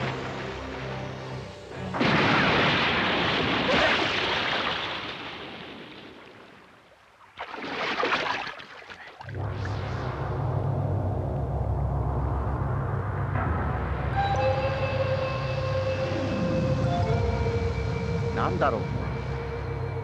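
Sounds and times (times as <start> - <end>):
music: 0.0 - 2.1, 10.0 - 20.0
big splash of sea water: 1.9 - 10.0.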